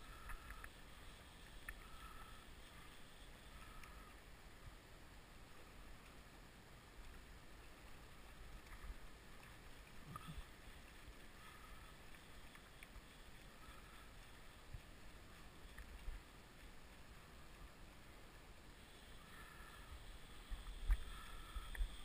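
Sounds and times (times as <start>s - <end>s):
river flowing over gravel: 0.0s - 22.0s.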